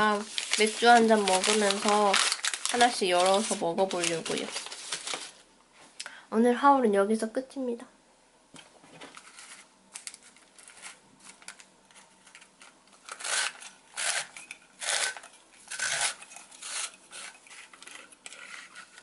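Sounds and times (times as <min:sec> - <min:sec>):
cutting tool cutting paper: 0:13.1 - 0:19.0.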